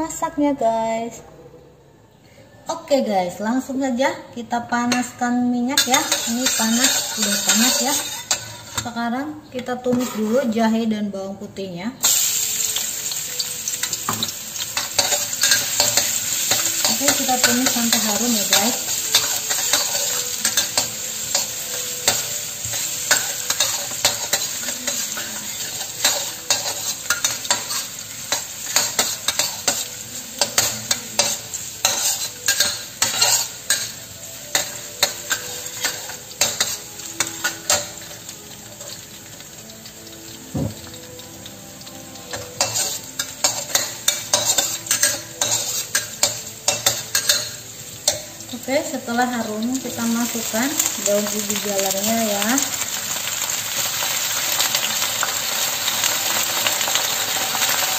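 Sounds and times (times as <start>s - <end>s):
garlic sizzling in hot oil: 4.8s - 10.8s, 12.0s - 57.9s
metal spatula scraping wok: 5.8s - 9.0s, 9.7s - 10.6s, 13.6s - 39.0s, 42.3s - 48.4s.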